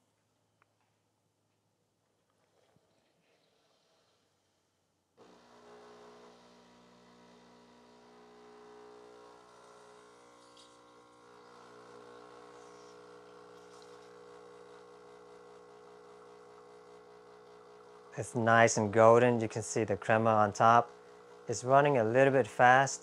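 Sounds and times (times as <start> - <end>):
espresso machine pump humming: 5.2 - 23.0.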